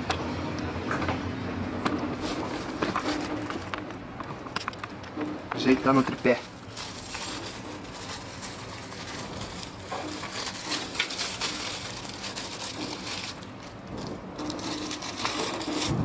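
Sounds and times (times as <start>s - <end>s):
plastic bag crinkling: 2.2s - 4.0s, 5.6s - 16.0s.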